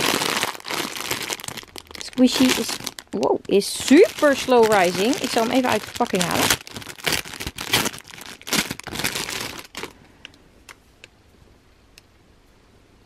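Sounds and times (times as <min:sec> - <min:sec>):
plastic bag crinkling: 0:00.0 - 0:10.0.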